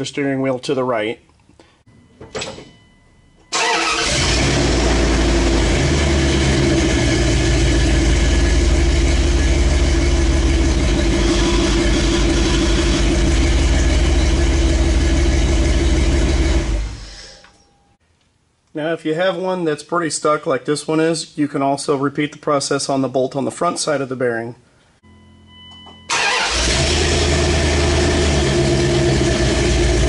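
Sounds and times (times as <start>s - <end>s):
pickup engine starting and running: 3.4s - 17.4s, 25.1s - 30.0s.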